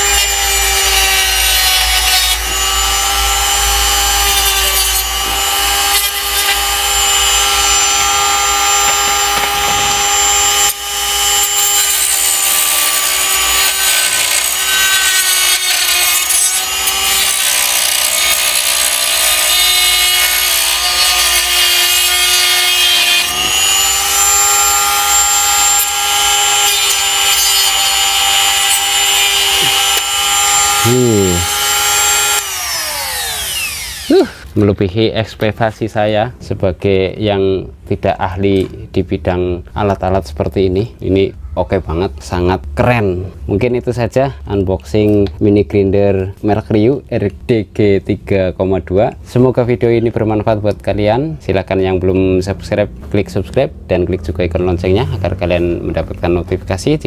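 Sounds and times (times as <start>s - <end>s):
die grinder cutting plastic: 0.0s - 34.5s.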